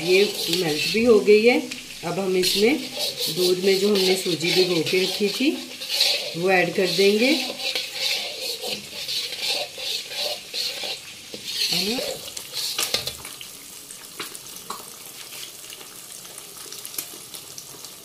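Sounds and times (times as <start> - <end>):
spatula scraping a steel pan: 0.0 - 1.2, 2.3 - 13.2
sizzling in a pan: 0.0 - 18.0.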